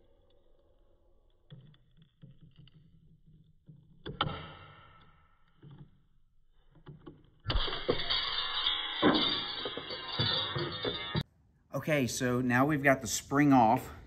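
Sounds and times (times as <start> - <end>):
ringing metallic clank: 7.4 - 11.3.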